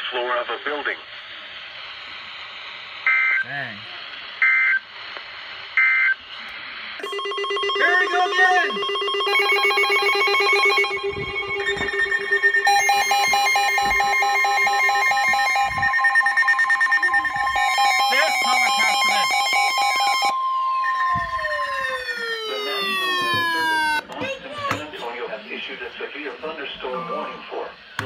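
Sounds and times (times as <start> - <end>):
buzzy digital data bursts: 7.0 - 20.3
pulsing beeping alarms: 7.0 - 24.0
steady alert tone: 7.0 - 24.0.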